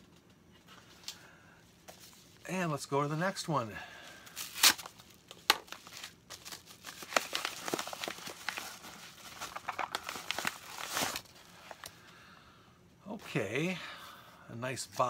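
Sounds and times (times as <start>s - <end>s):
paper envelope crinkling: 4.2s - 12.0s
paper mailer ripping: 4.3s - 11.3s.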